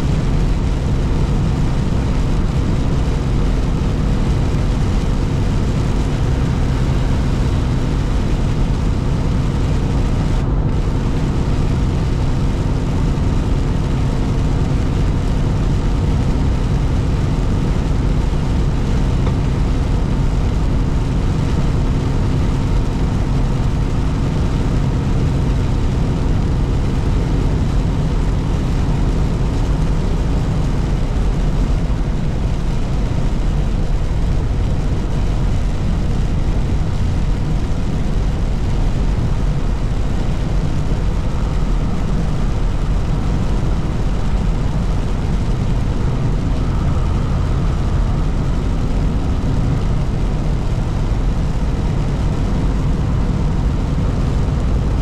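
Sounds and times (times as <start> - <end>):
truck engine and tyres droning: 0.0 - 55.0.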